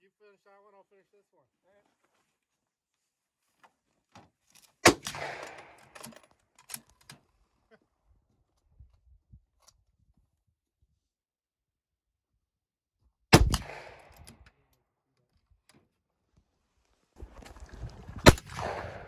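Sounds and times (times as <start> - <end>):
rifle shot echoing: 4.8 - 6.0, 13.3 - 14.4, 18.2 - 19.0.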